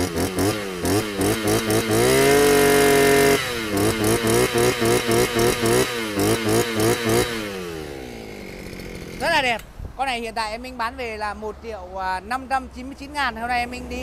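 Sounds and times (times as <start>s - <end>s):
brush cutter engine revving: 0.0s - 9.8s.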